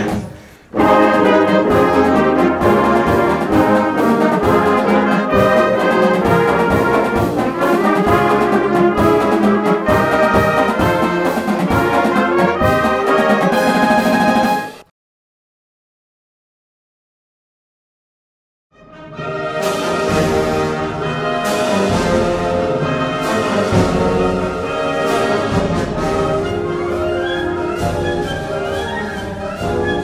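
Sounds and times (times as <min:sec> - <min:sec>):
marching drums: 0:00.0 - 0:14.9, 0:19.6 - 0:30.0
saxophones flutes and clarinets: 0:00.0 - 0:14.9, 0:18.8 - 0:30.0
brass playing tune: 0:00.7 - 0:14.9, 0:18.8 - 0:30.0.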